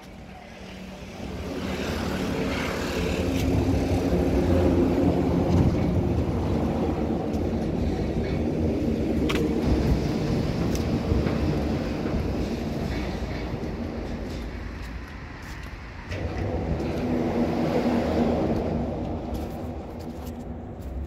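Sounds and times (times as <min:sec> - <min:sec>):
tyres droning on grid bridge: 0:00.0 - 0:21.0.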